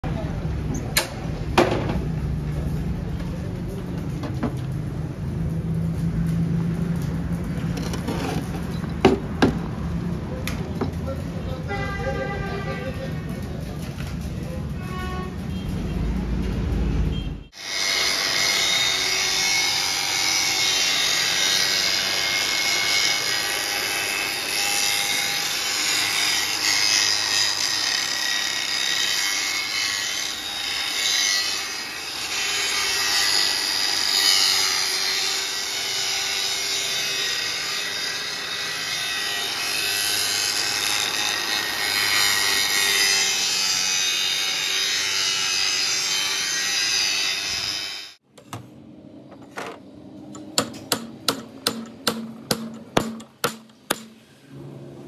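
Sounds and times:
angle grinder grinding metal: 0:17.5 - 0:48.2.

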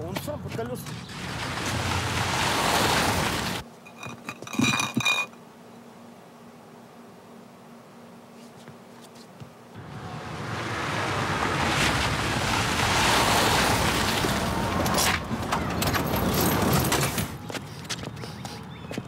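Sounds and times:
tyres crunching on gravel: 0:00.0 - 0:05.3, 0:09.8 - 0:19.0
car engine: 0:01.0 - 0:03.6, 0:09.8 - 0:17.3.

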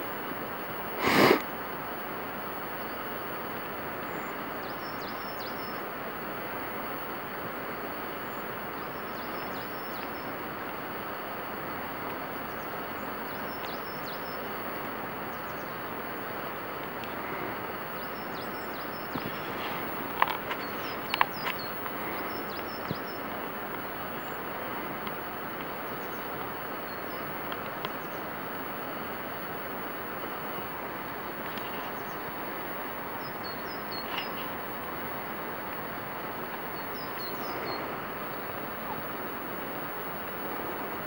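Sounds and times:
rushing outdoor background noise: 0:00.0 - 0:41.0
small bird singing: 0:04.0 - 0:06.0, 0:08.1 - 0:10.4, 0:12.4 - 0:24.8, 0:25.7 - 0:29.1, 0:31.3 - 0:35.3, 0:36.4 - 0:39.2.

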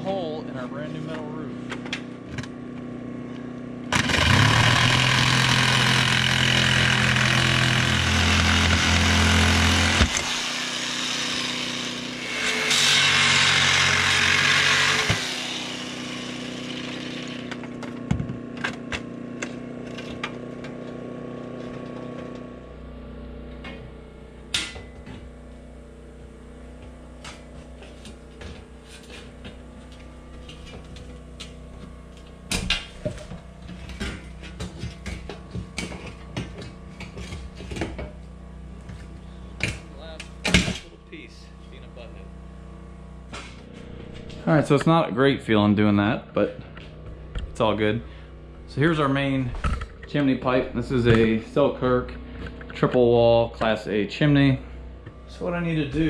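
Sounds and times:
power saw cutting steel sheeting: 0:03.9 - 0:18.0, 0:26.2 - 0:42.1.

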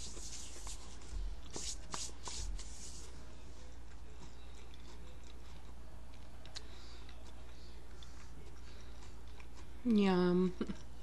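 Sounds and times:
hands rustling near microphone: 0:00.0 - 0:03.1.

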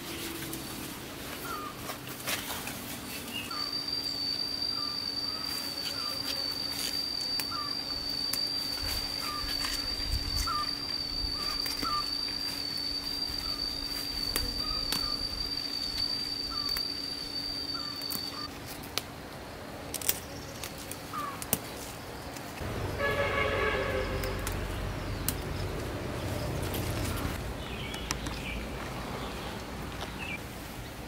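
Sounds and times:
insect trilling: 0:03.3 - 0:18.5
leaves and stems snapping: 0:14.3 - 0:15.2, 0:19.8 - 0:22.6, 0:24.2 - 0:25.9.

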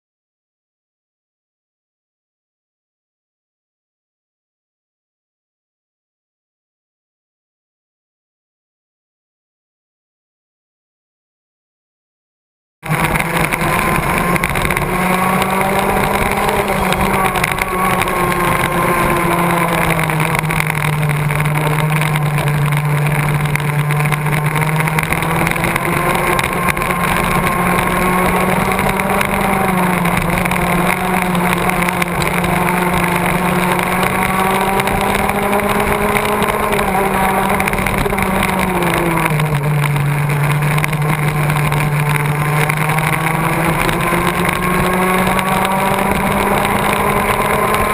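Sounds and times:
go-kart engine racing: 0:12.8 - 0:47.9.

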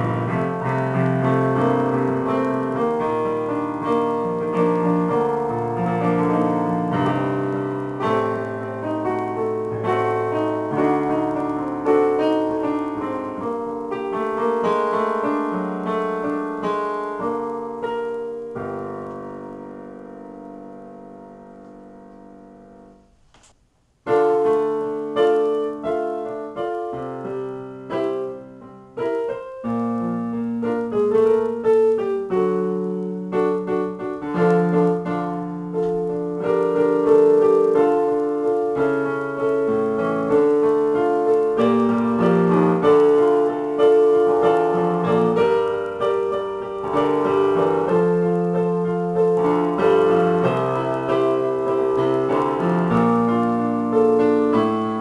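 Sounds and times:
digital piano playing: 0:00.0 - 0:23.3, 0:24.0 - 0:55.0.

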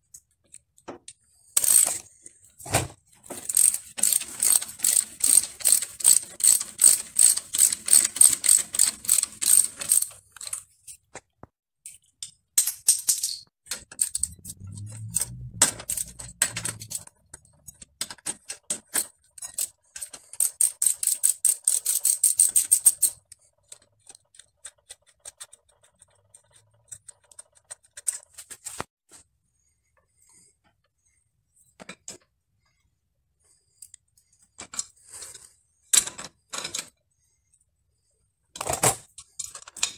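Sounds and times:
tools clicking and knocking: 0:00.0 - 0:02.1, 0:03.2 - 0:28.4, 0:35.9 - 0:37.0, 0:38.6 - 0:39.9
ratchet wrench clicking: 0:01.6 - 0:02.0, 0:03.4 - 0:10.6, 0:13.9 - 0:17.0, 0:18.8 - 0:23.2
low rumble: 0:14.2 - 0:16.8.

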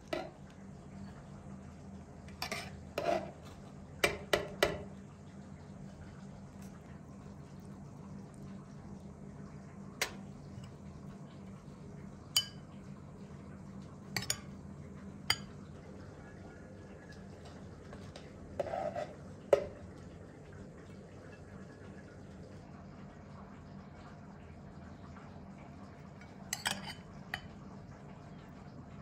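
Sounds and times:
low steady hum: 0:00.0 - 0:29.0
metal spoon clinking on dishes: 0:12.4 - 0:12.6, 0:14.2 - 0:14.6, 0:26.5 - 0:27.5.

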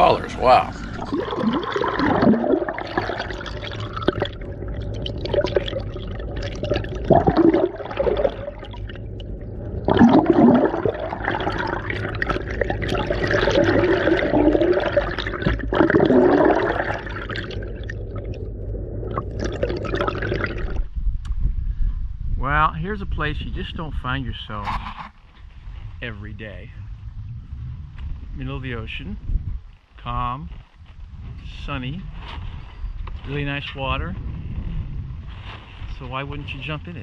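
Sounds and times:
underwater air bubbles gurgling: 0:00.7 - 0:20.9.

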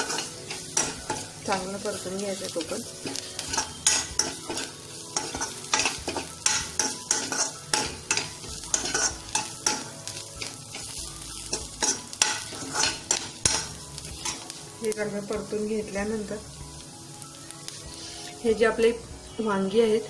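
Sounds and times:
metal spatula scraping pan: 0:00.0 - 0:01.6, 0:03.0 - 0:14.5
onions sizzling in oil: 0:00.0 - 0:20.0.

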